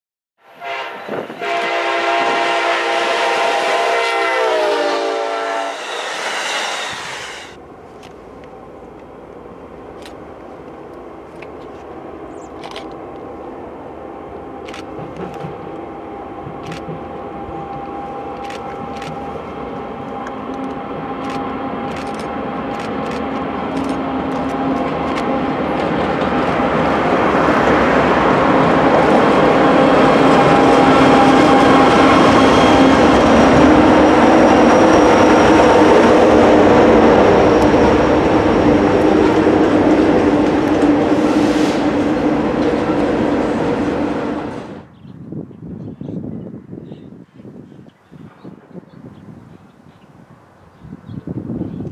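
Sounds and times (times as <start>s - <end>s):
locomotive air horn: 0.4s - 7.3s
diesel locomotives rumbling: 0.5s - 45.7s.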